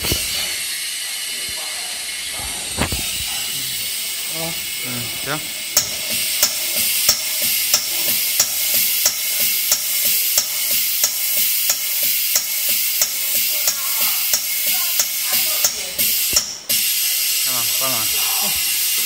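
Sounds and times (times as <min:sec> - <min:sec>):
machine hissing: 0:00.0 - 0:19.0
sharp machine clicks: 0:05.8 - 0:17.6.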